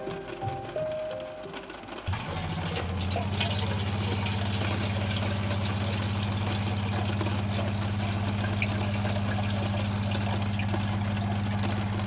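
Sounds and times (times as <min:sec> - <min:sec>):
music note: 0:00.0 - 0:02.1
electric water pump humming: 0:00.0 - 0:12.0
tap water running into metal pot: 0:02.0 - 0:12.0.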